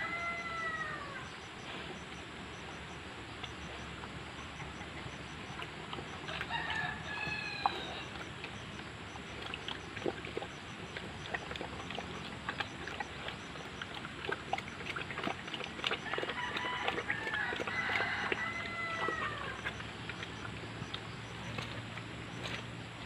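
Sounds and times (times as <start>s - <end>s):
rooster crowing: 0.0s - 1.4s, 6.3s - 8.1s, 16.0s - 19.6s
pig slurping and clicking: 0.0s - 23.0s.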